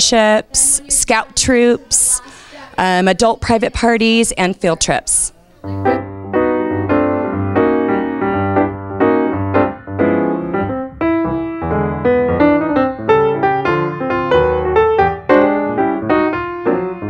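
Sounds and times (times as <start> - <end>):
keyboard music with bass line: 5.7 - 17.0.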